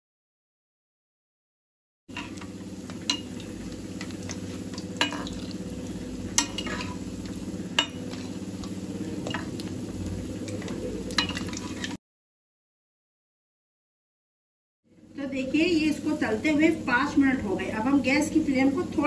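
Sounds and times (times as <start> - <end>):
low hum: 2.1 - 11.6
batter deep-frying in oil: 2.1 - 12.0, 14.9 - 19.0
spoon clinking against pan: 6.4 - 7.0, 7.8 - 8.2, 11.1 - 11.6.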